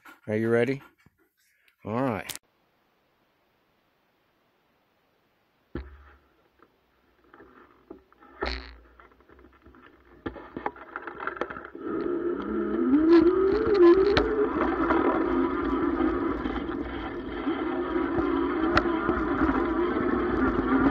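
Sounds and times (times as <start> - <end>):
bike knocking and rattling: 5.8 - 6.2, 7.1 - 20.9
heavy thump: 5.8 - 6.2
electric motor whine: 10.2 - 20.9
riding noise rush: 11.7 - 20.9.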